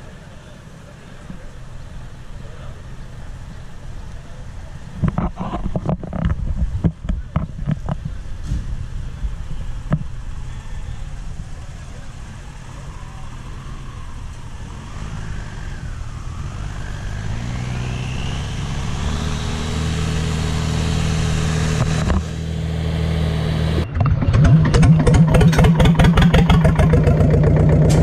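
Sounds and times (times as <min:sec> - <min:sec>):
tractor engine running: 0:00.0 - 0:28.0.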